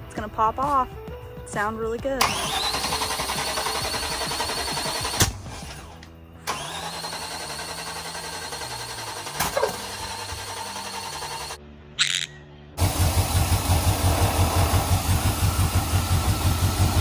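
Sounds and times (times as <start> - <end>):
engine cranking on starter: 2.2 - 11.6, 12.8 - 17.0
sharp click: 12.0 - 12.4.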